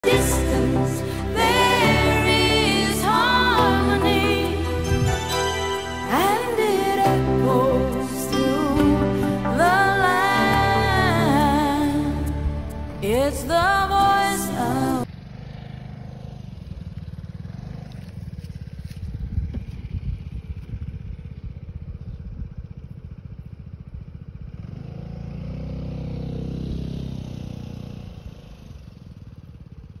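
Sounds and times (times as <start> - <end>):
vehicle engine passing by: 8.8 - 21.6, 24.4 - 30.0
wind buffeting microphone: 19.0 - 22.9.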